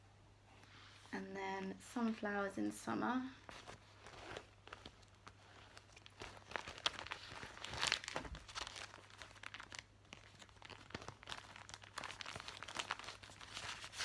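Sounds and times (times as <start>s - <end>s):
plastic bag crinkling: 3.4s - 14.0s.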